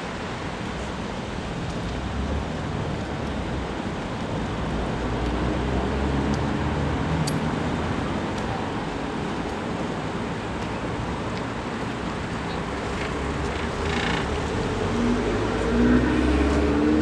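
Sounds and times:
bus engine rumble and tyre noise: 0.0s - 17.0s
cars passing: 0.0s - 17.0s.

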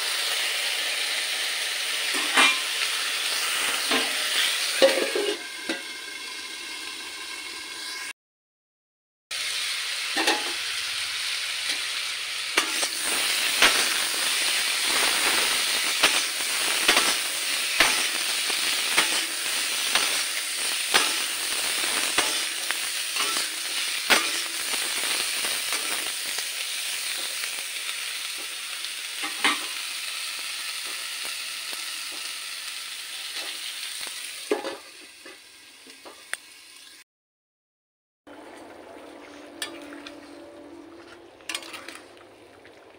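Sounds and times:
vegetables sizzling in oil: 0.0s - 8.1s, 9.3s - 37.0s
metal spatula scraping a pan: 2.1s - 5.9s, 12.6s - 26.4s, 39.3s - 42.2s.

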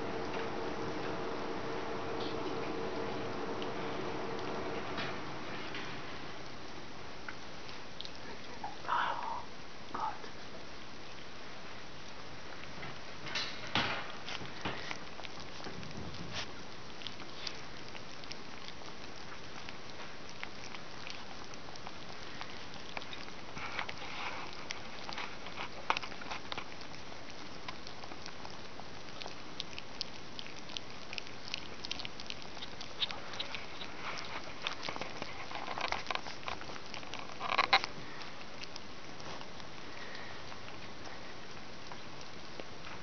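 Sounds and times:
puppies eating wet smacking: 0.0s - 43.0s.

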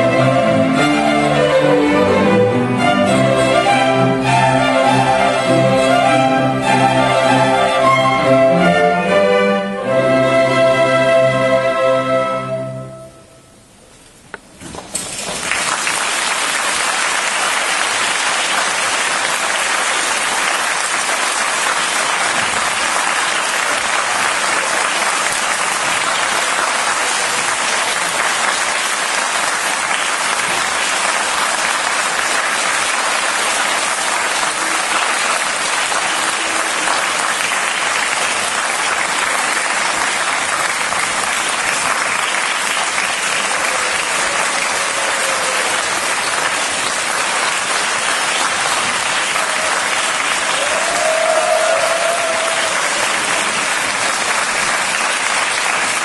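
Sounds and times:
music: 0.0s - 13.6s
audience applause: 14.8s - 56.0s.

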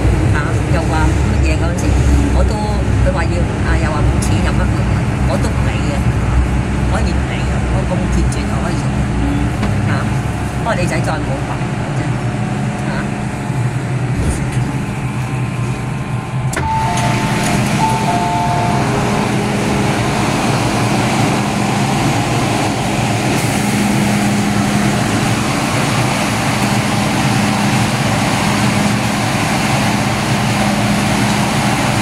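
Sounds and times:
train humming: 0.0s - 32.0s
two-note chime: 16.6s - 19.3s.

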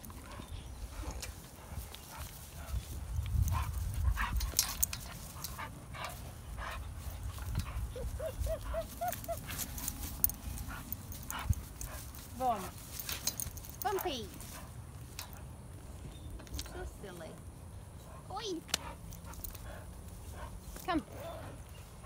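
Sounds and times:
dog huffing breaths: 0.1s - 12.4s, 17.9s - 20.7s
dog whining: 7.9s - 9.6s.

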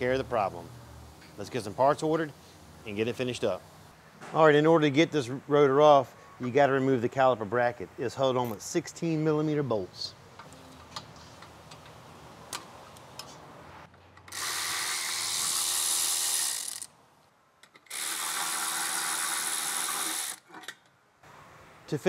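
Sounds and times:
power ratchet spinning bolts: 14.2s - 16.9s, 17.8s - 20.5s.

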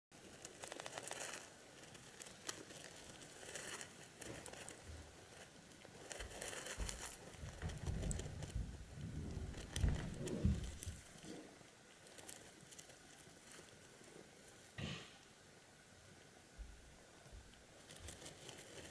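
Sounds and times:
wood shavings rustling: 0.2s - 14.6s, 17.8s - 18.9s
low dull bumps: 6.3s - 11.3s.

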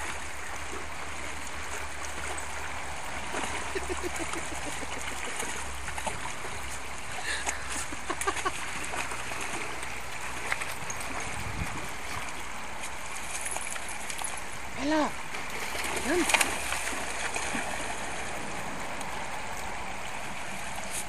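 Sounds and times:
shallow river flowing: 0.0s - 21.0s
dog splashing in water: 15.3s - 19.8s.

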